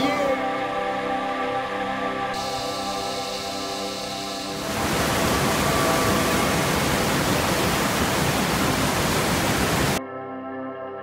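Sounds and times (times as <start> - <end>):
soft background music: 0.0 - 8.0, 9.9 - 11.0
waterfall and rapids rushing: 2.4 - 10.0.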